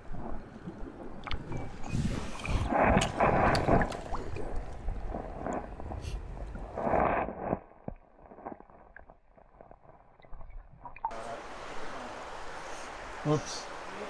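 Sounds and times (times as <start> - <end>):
river water sloshing and splashing: 0.0 - 7.0, 10.9 - 14.0.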